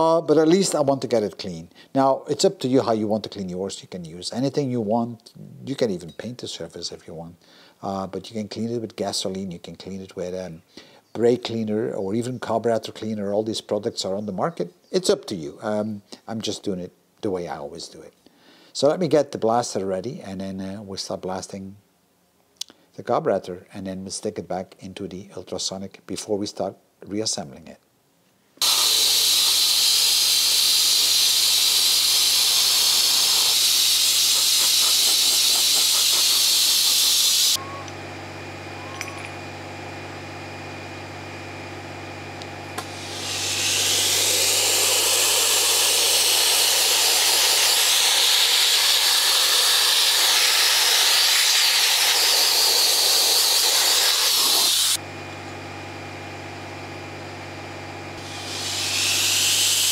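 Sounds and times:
blasting gun hissing: 0:28.6 - 0:37.6, 0:42.8 - 0:55.0, 0:58.2 - 0:59.9
low steady hum: 0:37.6 - 0:46.3.

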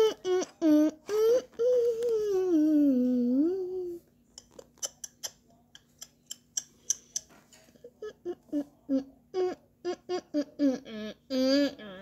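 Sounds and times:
child whining cry: 0:00.0 - 0:04.0, 0:08.0 - 0:12.0.

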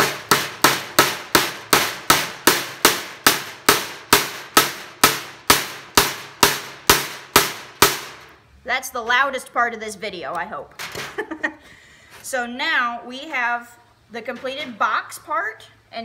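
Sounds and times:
hammer driving nail into wood: 0:00.0 - 0:08.3.

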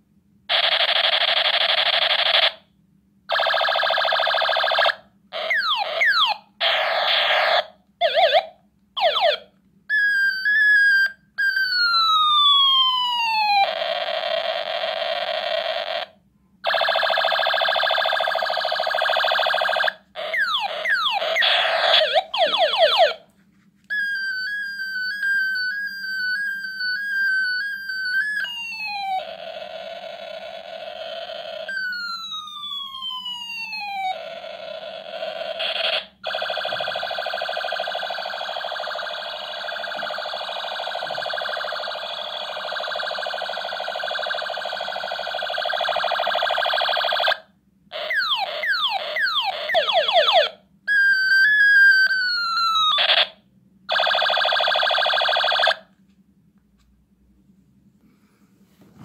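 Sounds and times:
toy ray gun electronic effects: 0:00.5 - 0:02.6, 0:03.3 - 0:08.4, 0:16.7 - 0:23.2, 0:23.9 - 0:32.8, 0:33.8 - 0:55.8.

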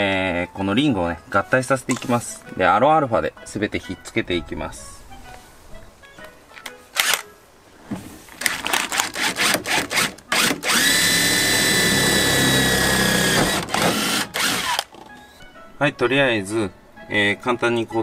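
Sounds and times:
cordless drill whining: 0:08.5 - 0:15.0.

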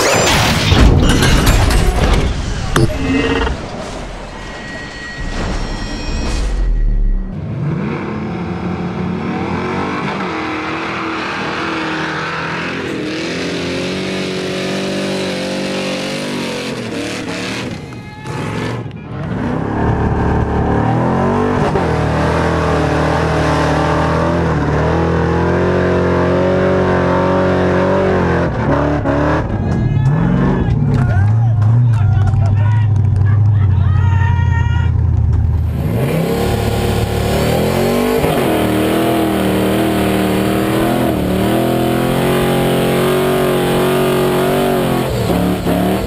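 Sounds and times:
engine revving hard: 0:35.6 - 0:46.0.

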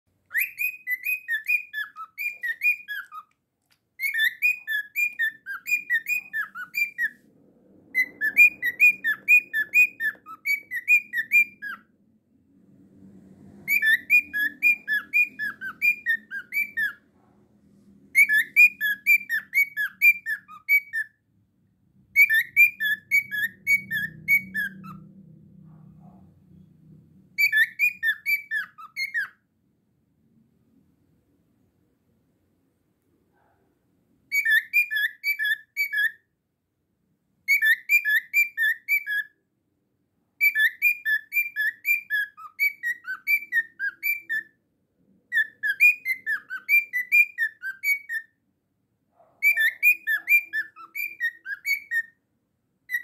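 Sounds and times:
cockatiel chirp-whistles: 0:00.3 - 0:03.4, 0:04.0 - 0:11.9, 0:13.5 - 0:17.0, 0:18.0 - 0:21.2, 0:22.0 - 0:26.2, 0:27.3 - 0:29.4, 0:34.3 - 0:36.3, 0:37.5 - 0:39.4, 0:40.4 - 0:44.6, 0:45.3 - 0:48.4, 0:49.2 - 0:52.2.

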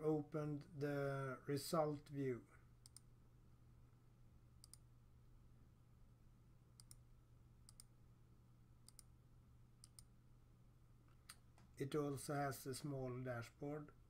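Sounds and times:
faint low hum: 0:00.0 - 0:14.0
computer mouse clicks: 0:02.8 - 0:03.1, 0:04.6 - 0:04.8, 0:06.8 - 0:07.0, 0:07.7 - 0:07.9, 0:08.8 - 0:09.1, 0:09.8 - 0:10.1.

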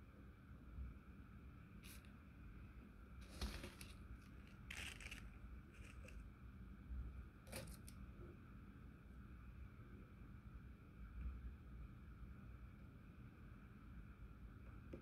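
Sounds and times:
snipping and rustling: 0:03.2 - 0:06.2, 0:07.5 - 0:07.9.

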